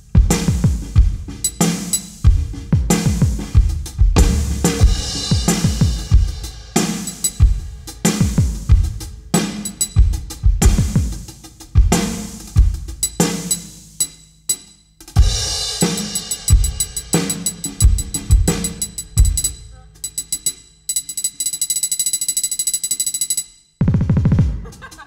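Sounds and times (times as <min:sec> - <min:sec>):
deep electronic kicks: 0:00.0 - 0:13.1, 0:16.5 - 0:19.7, 0:23.8 - 0:24.7
drum kit groove: 0:00.0 - 0:21.2, 0:23.8 - 0:25.0.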